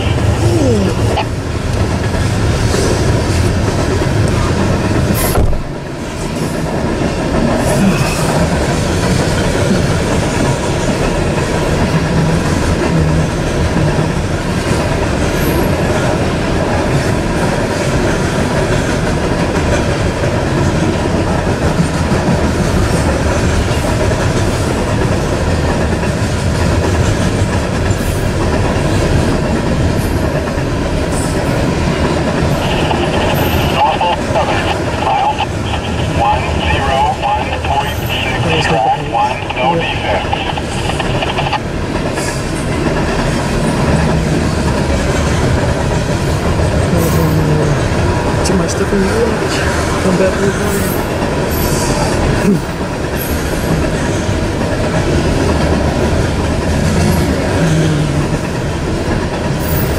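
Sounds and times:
freight train rolling past: 0.0s - 59.9s.

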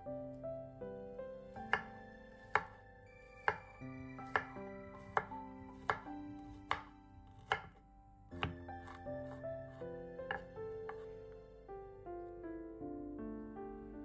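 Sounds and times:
knife knocking on wooden board: 10.3s - 11.0s.

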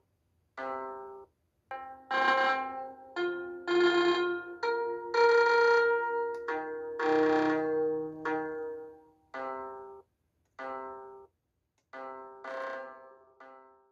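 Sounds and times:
slow instrumental sustained notes: 1.8s - 10.0s.

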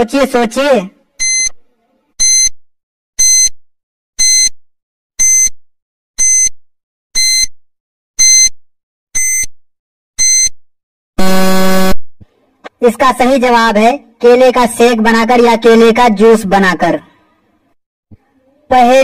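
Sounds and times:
short electronic beeps: 1.2s - 1.6s, 2.2s - 2.6s, 4.2s - 4.6s, 7.2s - 7.6s, 8.2s - 8.6s, 9.2s - 9.6s, 10.2s - 10.6s.

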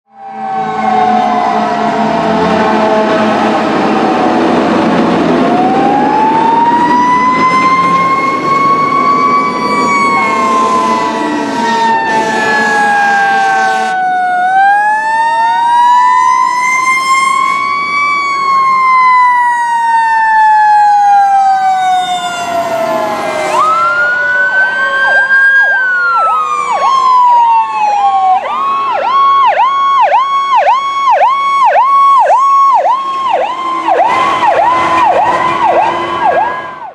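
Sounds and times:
fast electronic siren: 0.1s - 36.9s
mechanical siren falling: 0.1s - 36.9s
wailing sirens: 0.1s - 36.9s
air horn blasts: 10.0s - 14.0s, 33.5s - 36.8s.

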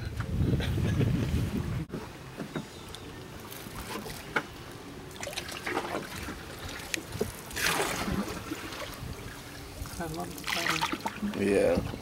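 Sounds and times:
water lapping against boat hull: 0.0s - 12.0s
water splash: 5.1s - 11.4s.

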